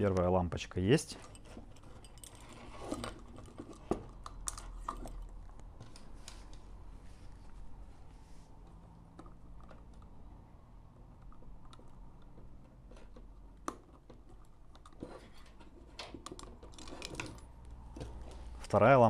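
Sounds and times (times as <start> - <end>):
plastic parts clicking and rattling: 1.2 - 6.6, 11.2 - 18.3.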